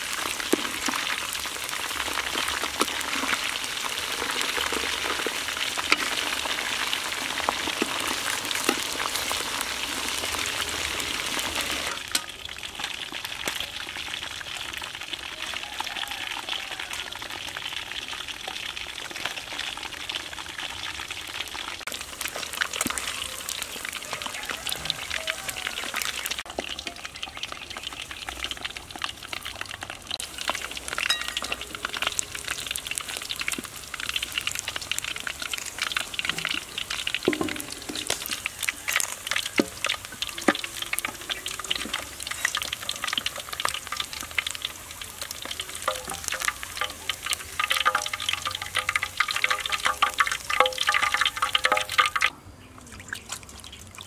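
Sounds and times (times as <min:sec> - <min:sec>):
deep-frying sizzle with pops: 0:00.0 - 0:52.3
metal spatula stirring: 0:01.9 - 0:10.0, 0:30.9 - 0:32.2, 0:35.9 - 0:52.3.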